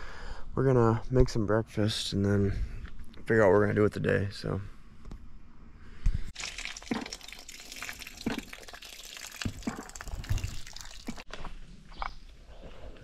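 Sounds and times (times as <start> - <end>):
water pouring onto sand: 6.4 - 11.3.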